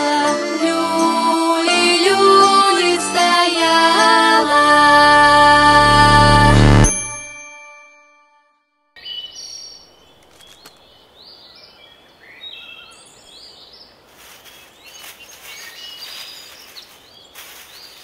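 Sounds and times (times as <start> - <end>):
outdoor background hiss: 9.0 - 18.0
small birds chirping: 9.0 - 18.0
rustling: 14.0 - 18.0.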